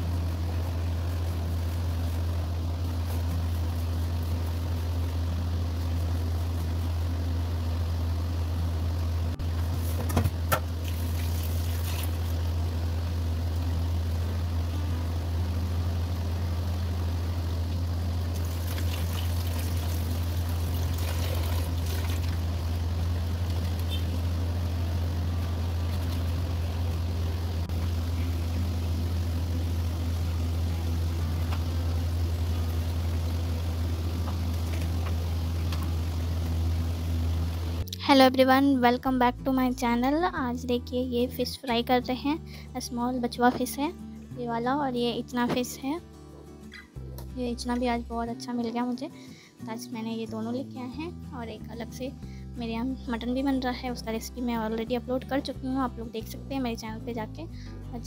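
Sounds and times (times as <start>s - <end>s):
steady low hum: 0.0s - 58.0s
water sloshing and splashing: 10.8s - 12.3s, 18.4s - 22.5s.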